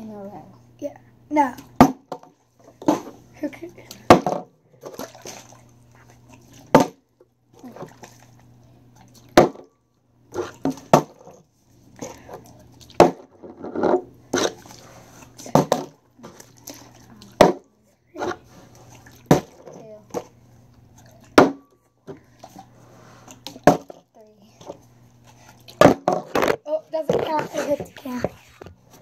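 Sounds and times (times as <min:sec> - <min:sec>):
plastic bottles thudding on wooden table: 0:01.8 - 0:03.2, 0:04.1 - 0:04.5, 0:06.7 - 0:07.0, 0:09.4 - 0:09.7, 0:10.6 - 0:11.3, 0:13.0 - 0:14.5, 0:15.5 - 0:16.0, 0:17.4 - 0:17.6, 0:19.3 - 0:19.7, 0:21.4 - 0:21.7, 0:23.6 - 0:24.0, 0:25.8 - 0:26.6
water sloshing in bottle: 0:02.6 - 0:09.6, 0:10.3 - 0:28.6.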